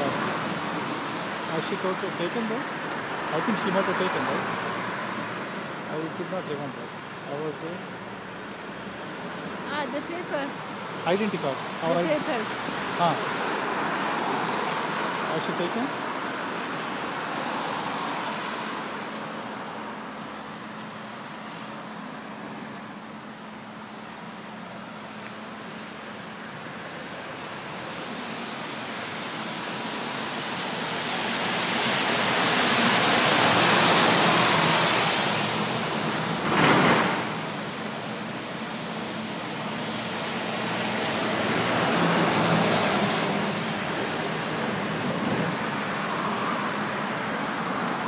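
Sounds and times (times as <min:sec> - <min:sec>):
road traffic passing: 0:00.0 - 0:48.0.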